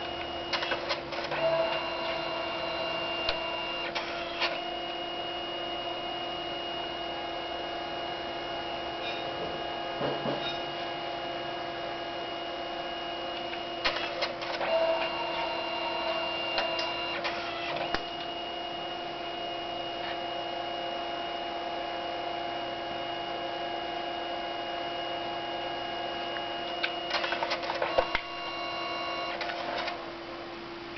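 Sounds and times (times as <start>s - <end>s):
printer motor whine: 0.0s - 30.1s
printer clicking and clatter: 0.5s - 2.3s, 13.8s - 15.0s, 16.1s - 18.0s, 27.1s - 28.3s, 29.3s - 30.0s.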